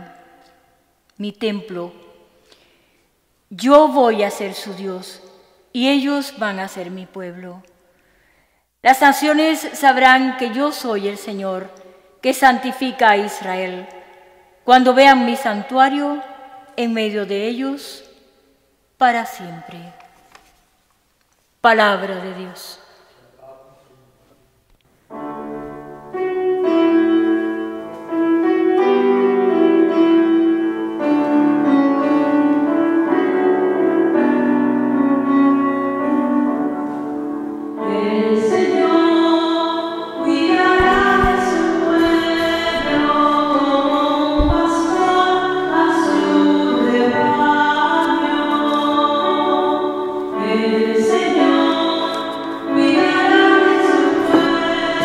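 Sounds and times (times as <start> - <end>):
electronic keyboard piano: 25.1 - 55.0
woman singing: 37.8 - 55.0.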